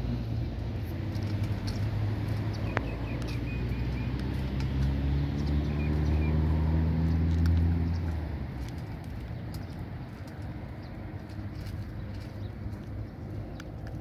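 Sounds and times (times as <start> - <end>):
vehicle engine humming: 0.0 - 14.0
high bird chirps: 2.4 - 4.3.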